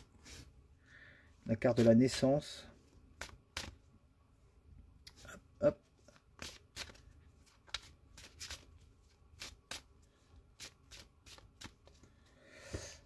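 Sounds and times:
cards being shuffled: 3.2s - 3.8s, 6.0s - 10.0s, 10.6s - 12.1s.

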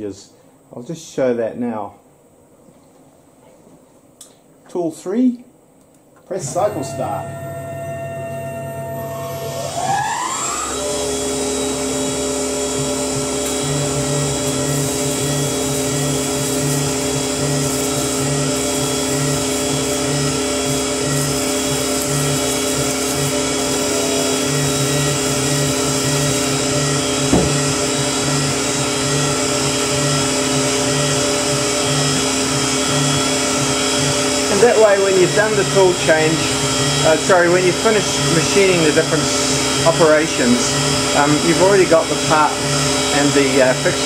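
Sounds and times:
milling machine spindle whine: 6.4s - 44.0s
sharp knock: 27.3s - 27.8s.

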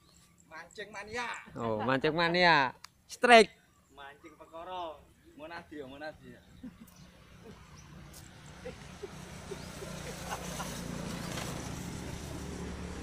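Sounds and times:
motorcycle engine hum: 6.5s - 13.0s.

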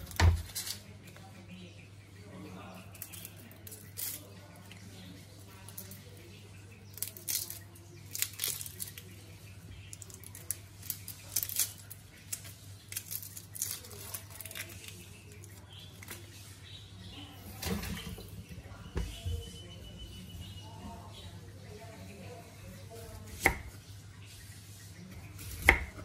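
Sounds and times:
onion skin crackling and rustling: 0.0s - 1.3s, 2.8s - 19.5s.

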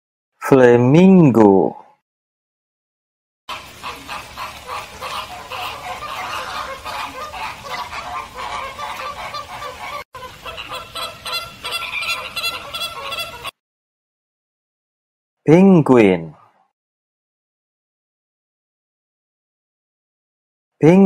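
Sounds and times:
flamingos honking: 3.5s - 13.6s.

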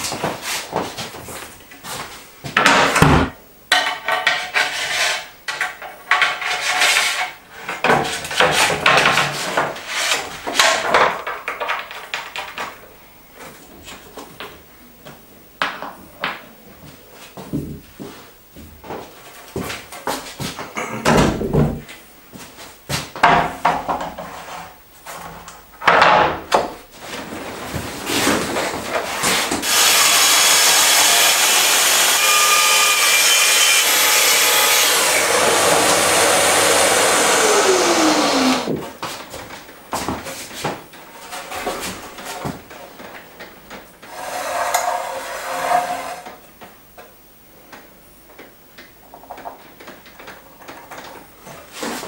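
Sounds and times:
boards knocking on workbench: 2.5s - 4.2s
circular saw cutting wood: 29.6s - 38.8s, 44.1s - 46.3s.

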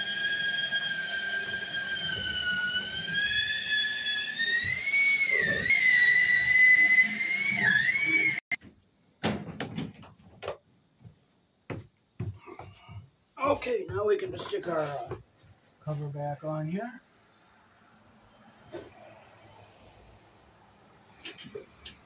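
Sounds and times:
high-pitched whistling whine: 0.0s - 8.6s.

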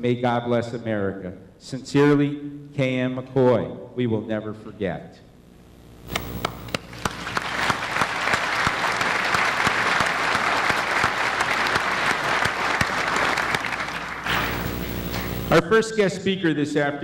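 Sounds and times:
audience applauding: 6.2s - 15.5s.

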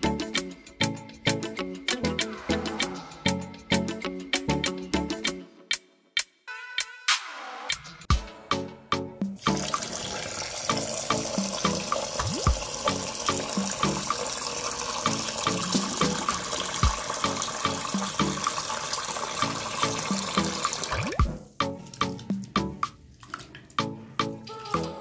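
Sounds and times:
background music with beat: 0.0s - 9.8s, 10.7s - 14.2s, 15.1s - 18.5s, 19.4s - 23.1s, 23.7s - 25.0s
water running: 9.4s - 24.8s.

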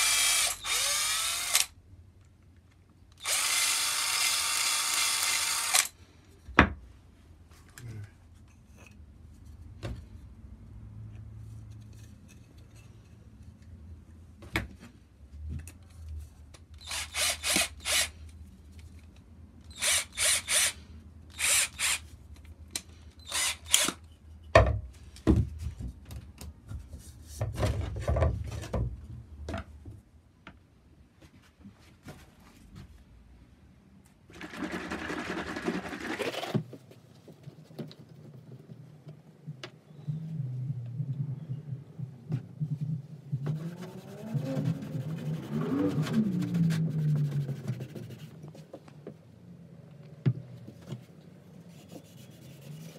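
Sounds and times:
cordless drill spinning: 0.0s - 1.7s, 3.2s - 6.0s, 16.8s - 18.1s, 19.7s - 22.0s, 23.2s - 24.0s.

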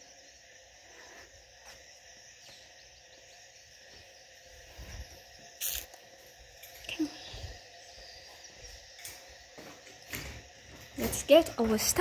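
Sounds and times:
crickets calling: 0.0s - 12.0s
frogs calling: 0.0s - 12.0s.

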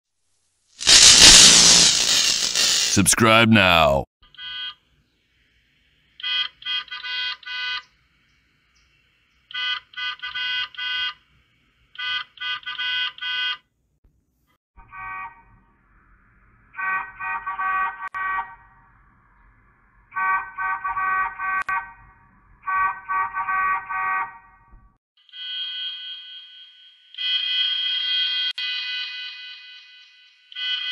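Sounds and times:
cartoon bus horn honks: 14.8s - 15.6s, 16.8s - 18.6s, 20.2s - 22.0s, 22.7s - 24.5s.

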